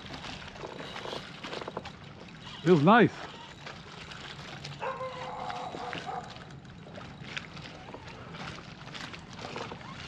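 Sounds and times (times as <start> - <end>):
water sloshing against kayak hull: 0.0 - 10.0.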